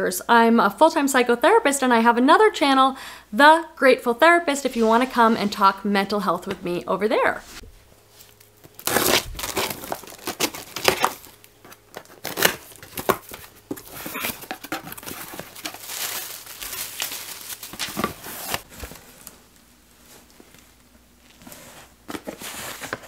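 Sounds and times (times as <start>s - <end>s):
tape tearing: 8.3s - 18.7s
scissors slitting packing tape: 8.8s - 13.3s
cardboard flaps scraping: 8.8s - 19.4s.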